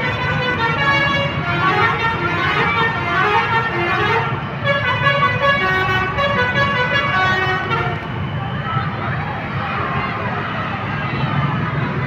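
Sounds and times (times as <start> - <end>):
musical bus horn tune: 0.0 - 8.1
bus engine running low: 0.0 - 12.0.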